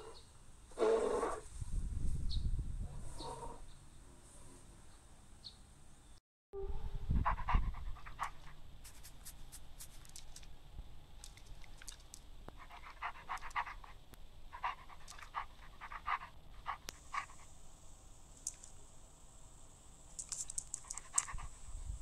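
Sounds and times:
wolf panting: 7.2s - 8.6s, 12.6s - 17.5s, 20.6s - 22.0s.

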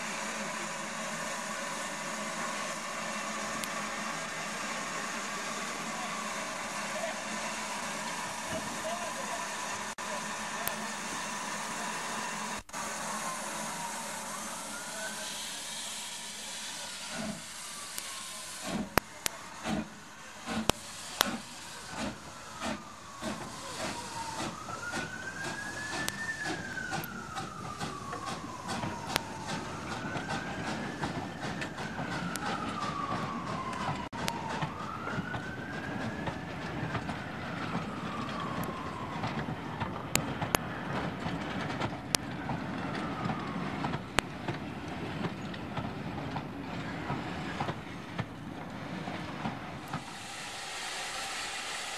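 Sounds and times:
steam locomotive chuffing: 0.0s - 51.9s
coaches rolling with clicks: 20.5s - 50.0s.

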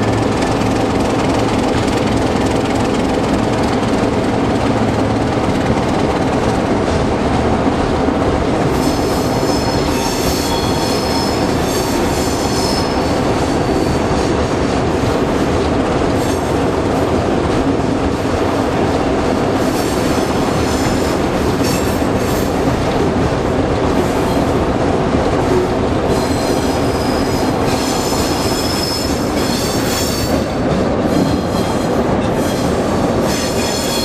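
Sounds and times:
diesel locomotive running: 0.0s - 34.0s
wheels squealing: 8.7s - 14.2s, 26.1s - 34.0s.

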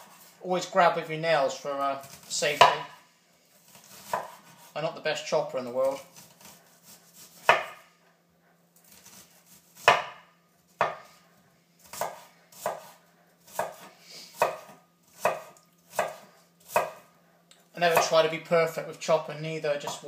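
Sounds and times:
knife chopping on wooden board: 2.0s - 3.0s, 3.6s - 4.7s, 6.0s - 7.8s, 8.8s - 11.1s, 11.8s - 17.1s, 17.9s - 18.2s.

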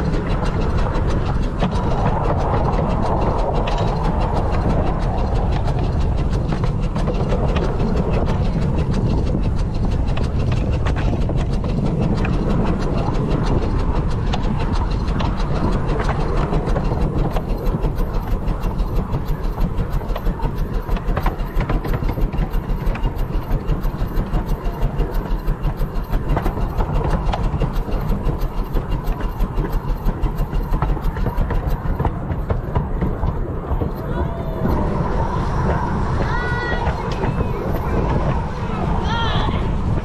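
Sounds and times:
steam locomotive running: 0.0s - 40.0s.

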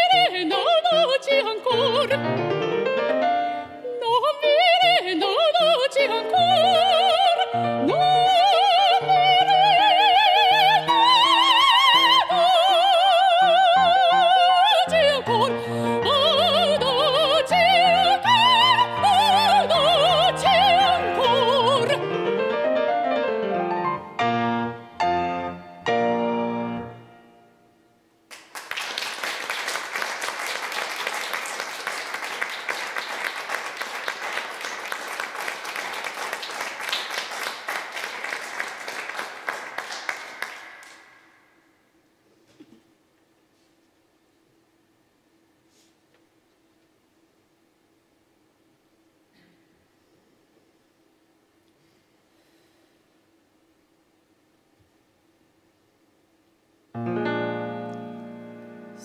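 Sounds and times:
soprano singing: 0.0s - 27.0s
grand piano: 0.0s - 27.8s, 56.9s - 59.0s
audience applause: 28.3s - 41.4s.

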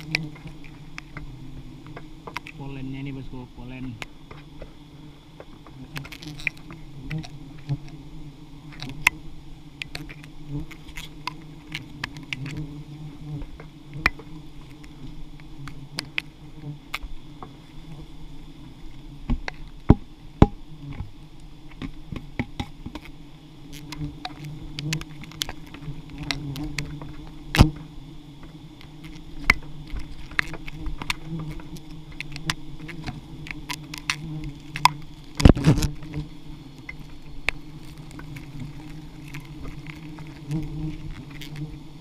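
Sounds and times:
swarm of bees buzzing: 0.0s - 42.0s.

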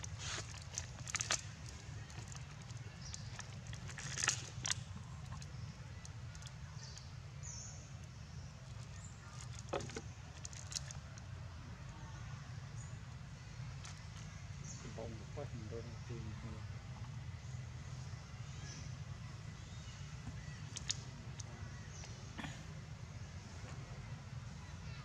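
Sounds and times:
steady low rumble: 0.0s - 24.8s
plastic bottles crackling: 0.1s - 5.5s.

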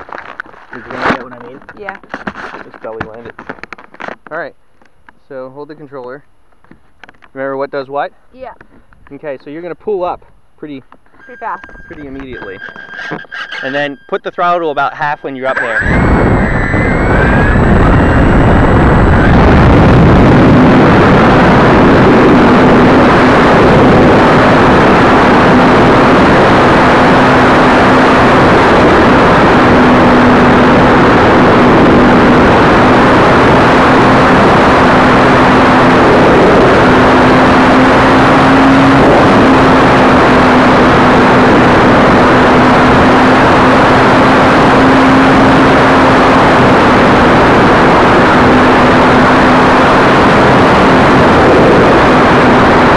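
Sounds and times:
propeller hum: 0.0s - 52.9s
rushing air noise: 11.2s - 52.9s.

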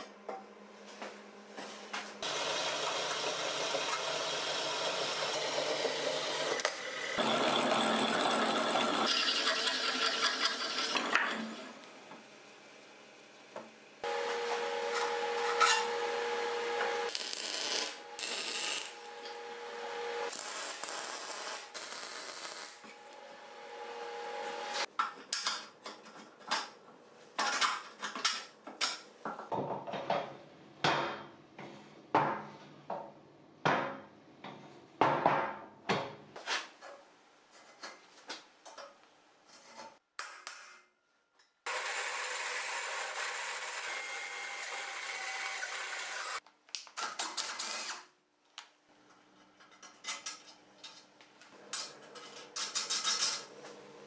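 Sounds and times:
drill bit cutting steel: 4.1s - 11.0s, 41.7s - 46.4s
machine hum: 14.0s - 24.9s.

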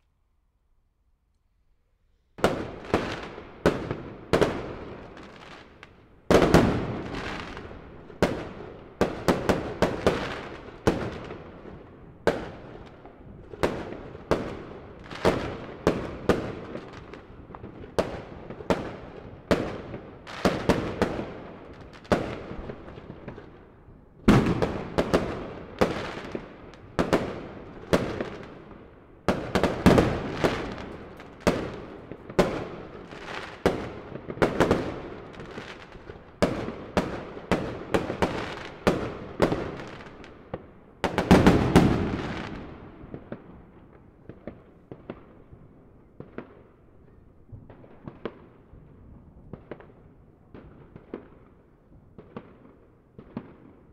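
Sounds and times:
fireworks bursting with bangs: 2.4s - 46.6s.

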